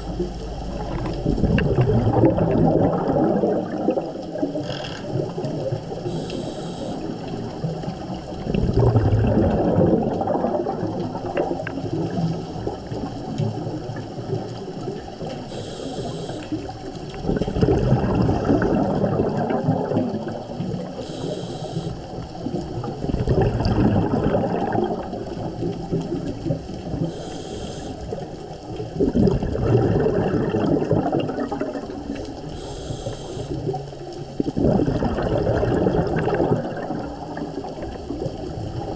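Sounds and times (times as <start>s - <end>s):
exhaled bubbles rushing: 0.0s - 38.9s
regulator hiss on inhale: 6.0s - 7.3s, 15.5s - 16.7s, 21.0s - 22.2s, 27.0s - 28.2s, 32.5s - 33.8s.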